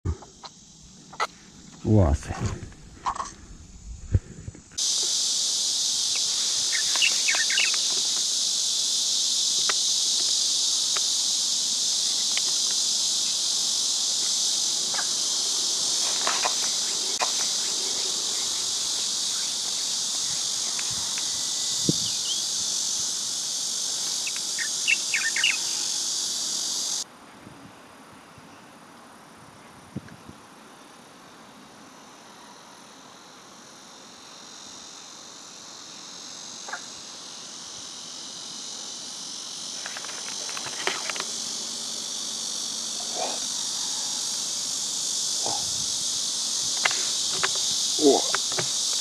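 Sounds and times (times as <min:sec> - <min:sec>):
shrill insect chorus: 0:00.1 - 0:49.0.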